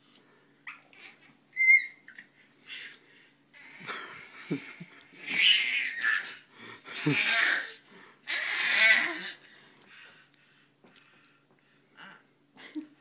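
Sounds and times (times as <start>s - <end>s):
baby squealing: 0.7s - 2.2s, 5.3s - 6.4s, 8.3s - 9.4s
baby panting and squeaking: 0.7s - 2.4s.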